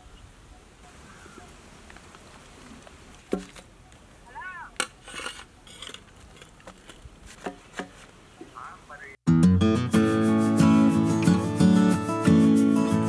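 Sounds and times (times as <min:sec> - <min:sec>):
spatula scraping metal pan: 0:04.9 - 0:06.6.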